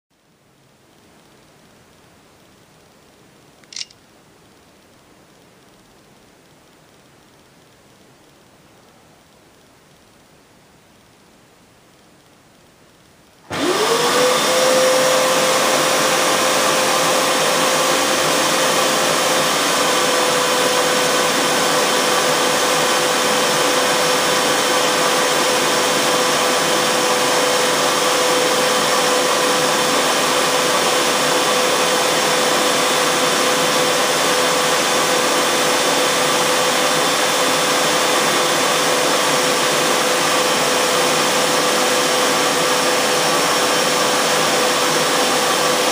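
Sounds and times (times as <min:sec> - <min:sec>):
carpet washer motor whining: 0:13.5 - 0:45.9.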